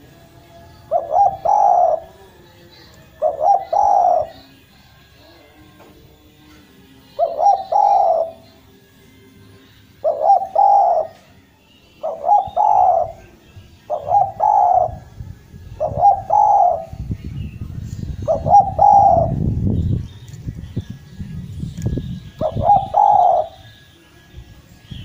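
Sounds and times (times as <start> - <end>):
dove cooing: 0.8 - 2.3, 3.1 - 4.6, 7.2 - 8.7, 10.0 - 11.3, 12.0 - 15.1, 15.8 - 17.1, 18.2 - 19.4, 22.3 - 23.7.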